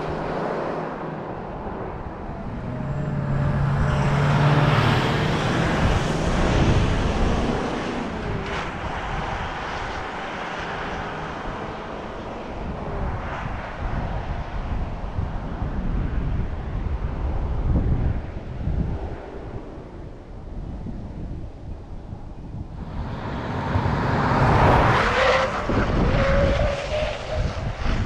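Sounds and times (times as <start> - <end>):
vehicle driving past: 2.2 - 8.2, 22.8 - 26.1.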